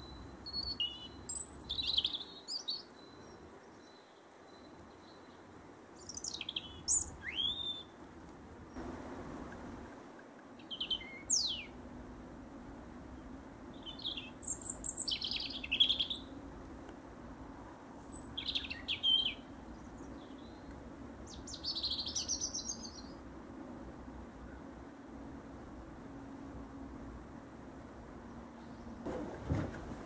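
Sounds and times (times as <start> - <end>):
robin singing: 0.0 - 8.0, 10.6 - 11.8, 13.2 - 16.4, 17.9 - 23.2.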